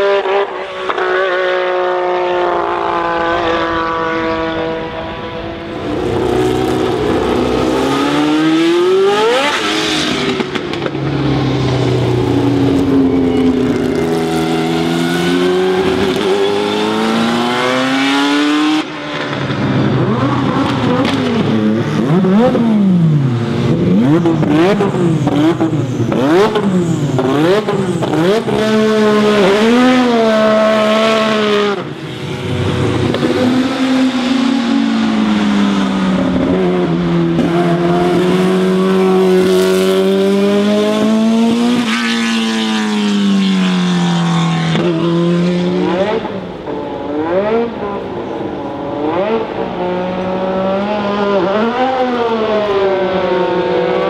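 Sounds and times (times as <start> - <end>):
racing car engines revving: 0.0 - 54.0.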